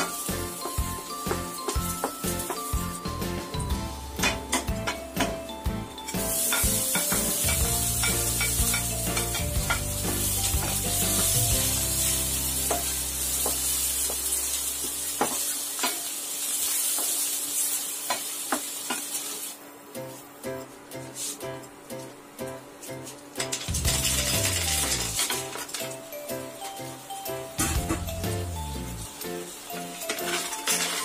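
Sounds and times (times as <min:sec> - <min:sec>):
onion sizzling in hot oil: 0:00.0 - 0:19.7, 0:23.4 - 0:27.0, 0:27.8 - 0:31.0.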